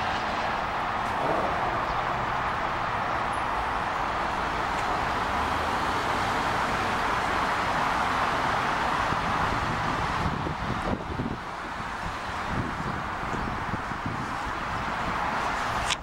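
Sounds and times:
cars driving past: 0:00.0 - 0:16.0.

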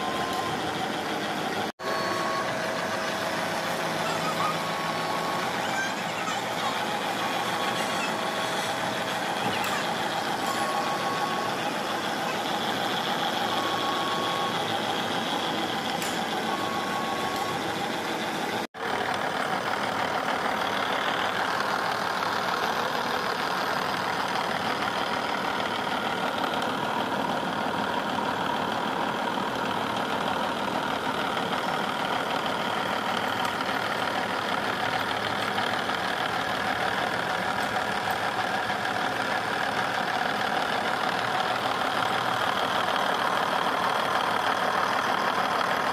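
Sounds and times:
short beep: 0:01.8 - 0:15.5.

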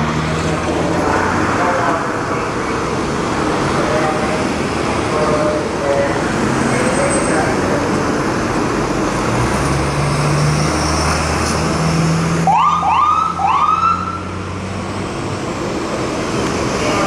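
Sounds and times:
electronic siren whoops: 0:12.4 - 0:14.2.

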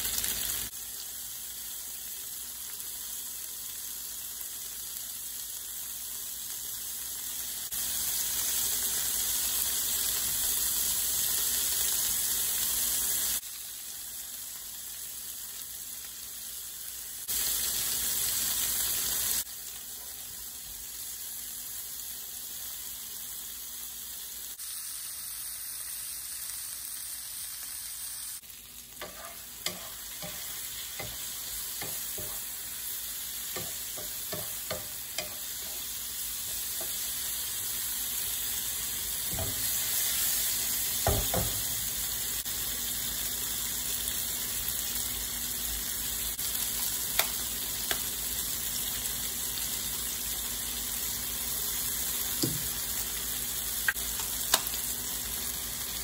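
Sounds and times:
vegetables sizzling in a pan: 0:00.0 - 0:56.0
wooden spatula knocking on pan: 0:33.5 - 0:35.4, 0:41.0 - 0:41.7.

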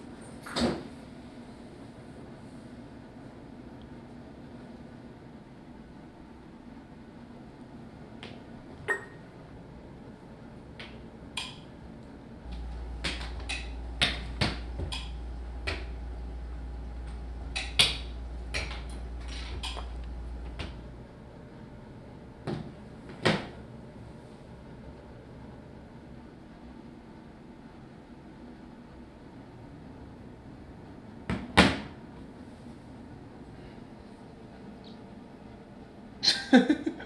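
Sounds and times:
low steady hum: 0:00.0 - 0:31.3, 0:32.0 - 0:37.0.

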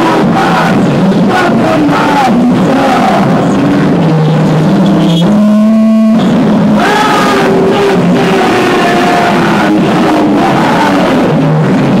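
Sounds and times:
harsh distorted noise music: 0:00.0 - 0:12.0
low steady tone: 0:01.8 - 0:06.8.

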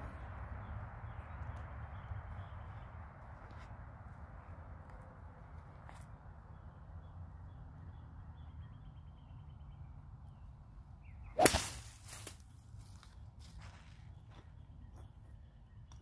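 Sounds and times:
golf club cracking ball: 0:11.4 - 0:11.8
golf club swish: 0:11.4 - 0:12.0.

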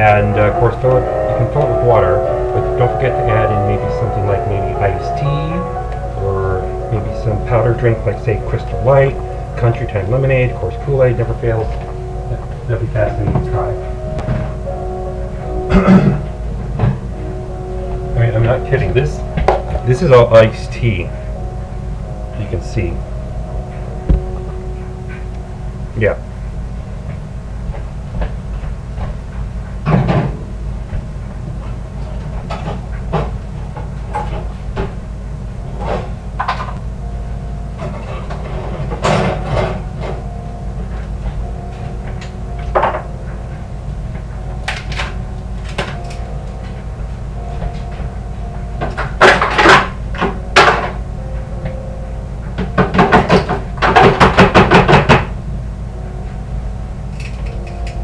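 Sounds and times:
low hum: 0:00.0 - 0:58.0.

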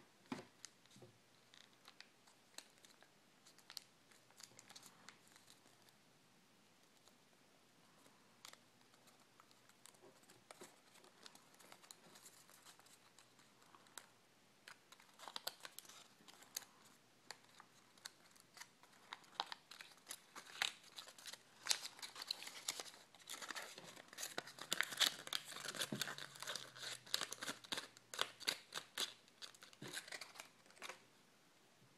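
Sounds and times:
paper crinkling as folded: 0:08.4 - 0:31.0.

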